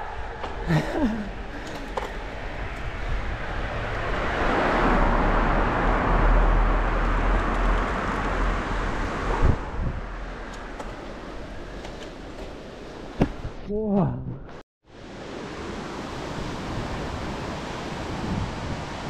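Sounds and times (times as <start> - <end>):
vehicle passing on wet road: 2.1 - 10.5.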